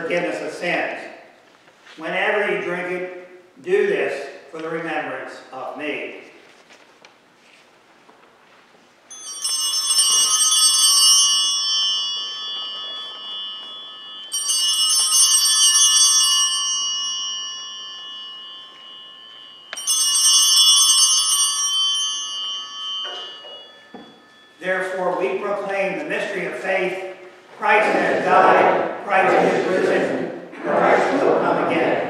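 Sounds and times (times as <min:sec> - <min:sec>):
altar bells ringing: 0:09.1 - 0:30.5.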